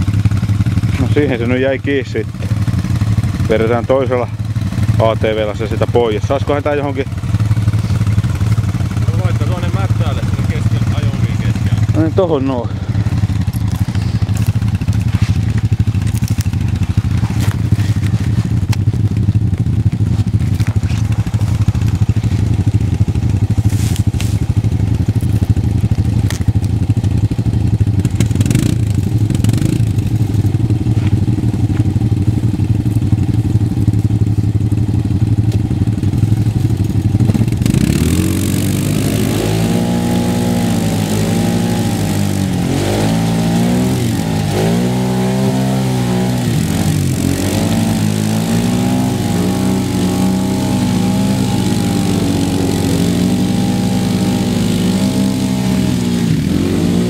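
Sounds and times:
atv engines running: 0.0 - 57.0
engine revving under load: 0.8 - 18.8, 28.0 - 31.8, 37.1 - 57.0
clatter: 13.2 - 55.2.

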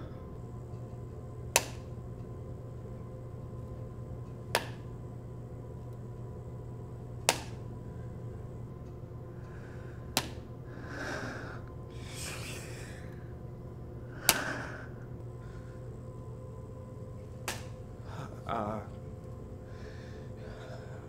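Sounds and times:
low electrical hum: 0.0 - 21.0
soft breathy exhales: 10.8 - 13.1.

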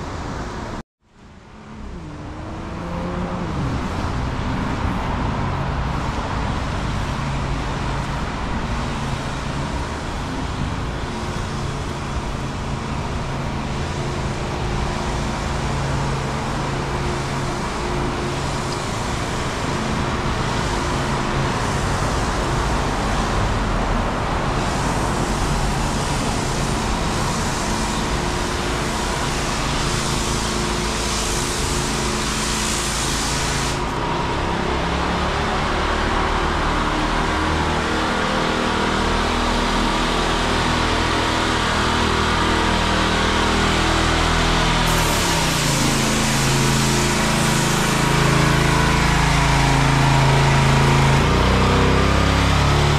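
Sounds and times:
road noise: 0.0 - 52.9
vehicle engines running: 0.0 - 52.9
hiss: 24.4 - 34.1, 37.7 - 52.7.

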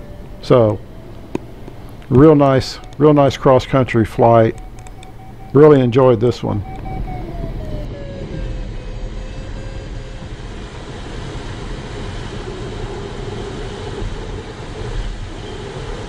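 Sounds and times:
thin tone sliding down: 0.0 - 11.4
airflow rushing over cockpit: 0.0 - 16.0.

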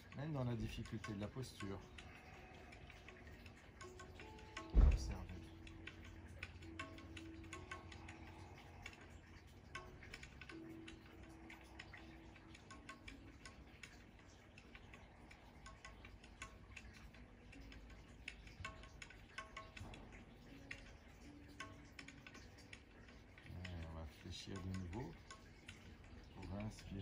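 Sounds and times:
faint ticks and clicks: 0.0 - 27.0
low steady hum: 0.0 - 27.0.

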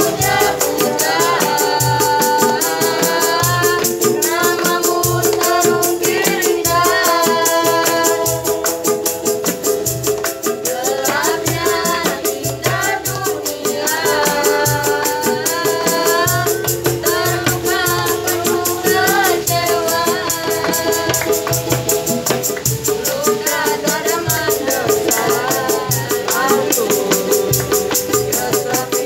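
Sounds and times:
woman singing: 0.0 - 9.7, 10.4 - 29.0
hand drums struck: 0.0 - 29.0
strummed ukulele: 0.0 - 29.0
tambourine shaken: 0.0 - 29.0.

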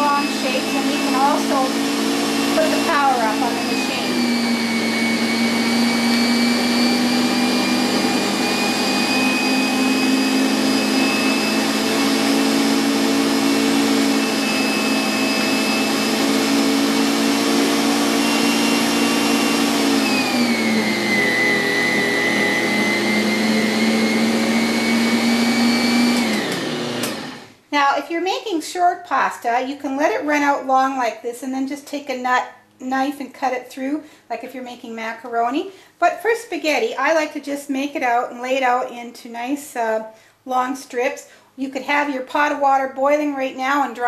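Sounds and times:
kitchen machine motor whining: 0.0 - 27.6.

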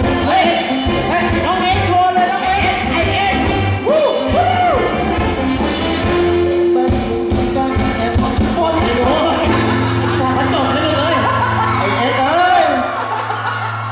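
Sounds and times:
live band music: 0.0 - 13.9
person singing: 6.2 - 12.3.

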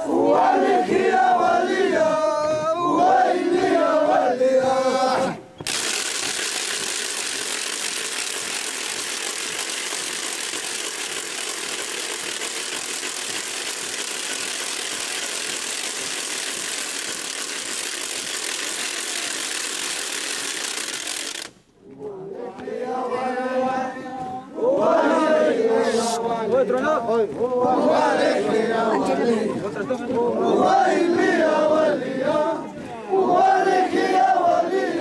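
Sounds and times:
voices singing a chant: 0.0 - 5.5, 21.8 - 35.0
harsh rattling hiss: 5.6 - 21.6.

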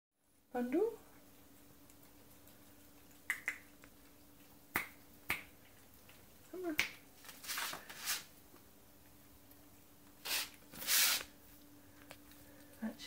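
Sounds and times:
finger snapping: 3.3 - 3.6, 4.7 - 5.5.

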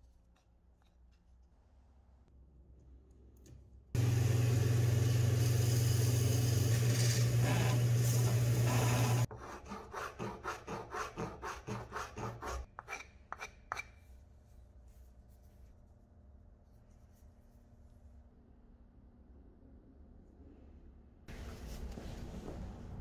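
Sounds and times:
file scraping wood: 8.7 - 13.9.

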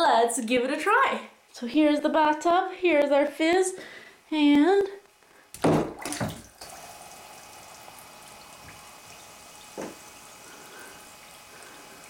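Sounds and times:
bath bomb splashing into water: 5.6 - 6.7
water drip: 6.0 - 12.0
faint fizzing hiss: 6.2 - 12.0
droplets falling onto water: 7.8 - 12.0.

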